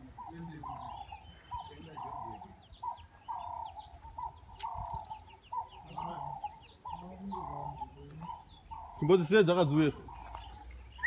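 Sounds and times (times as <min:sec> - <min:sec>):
birds calling: 0:00.0 - 0:11.0
high bird chirps: 0:00.0 - 0:11.0.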